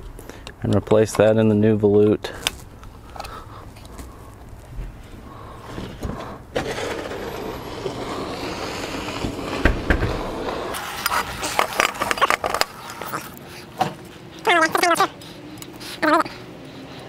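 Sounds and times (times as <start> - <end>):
rushing rolling noise: 5.8 - 12.8.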